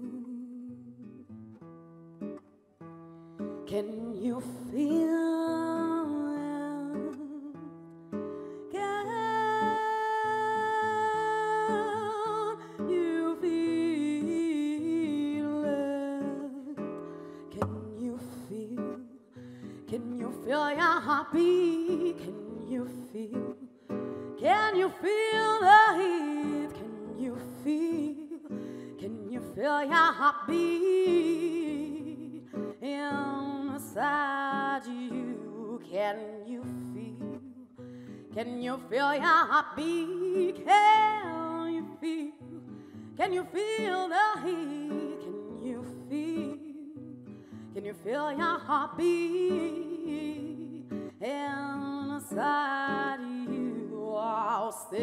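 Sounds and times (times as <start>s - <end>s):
woman singing with vibrato: 0.0s - 1.4s, 3.6s - 7.8s, 8.6s - 55.0s
fingerpicked acoustic guitar: 0.0s - 55.0s.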